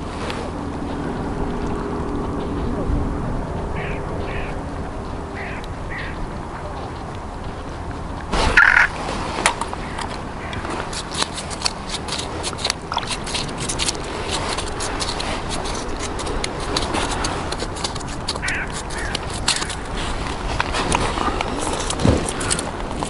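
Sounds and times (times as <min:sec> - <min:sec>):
short call-like sound: 0:08.5 - 0:08.9.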